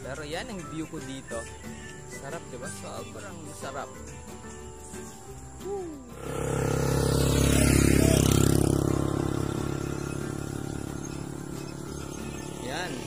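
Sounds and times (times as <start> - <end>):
vehicle passing by: 6.1 - 13.0.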